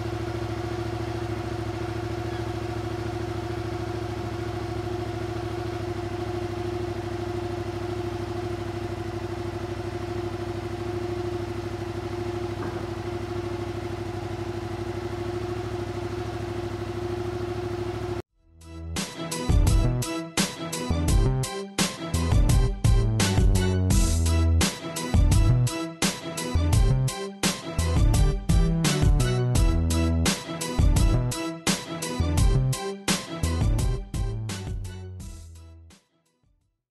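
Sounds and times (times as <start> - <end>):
motorcycle engine idling: 0.0 - 18.2.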